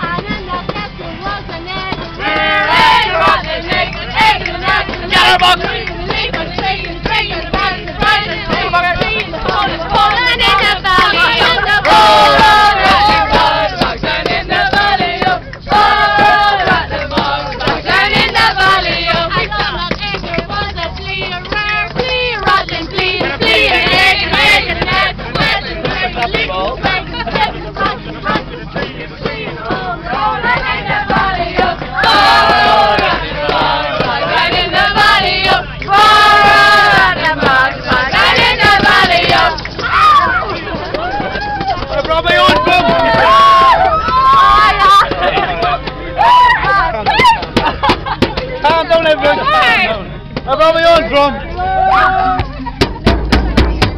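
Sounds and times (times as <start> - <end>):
group of people singing loudly: 0.0 - 50.1
maracas rattling: 0.0 - 53.9.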